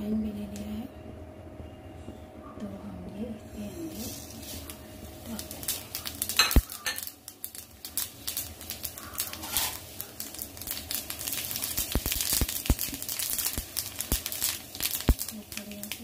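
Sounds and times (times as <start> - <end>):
seeds clicking and crackling: 3.9 - 16.0.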